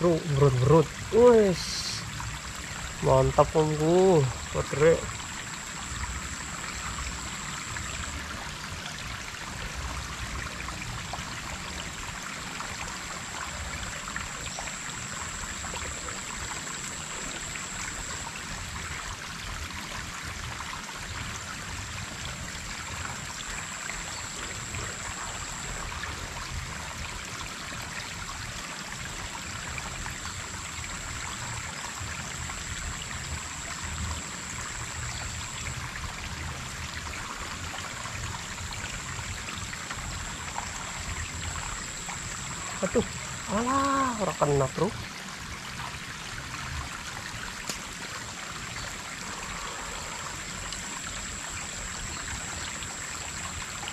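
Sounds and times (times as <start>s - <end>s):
water rushing and trickling in stream: 0.0s - 53.9s.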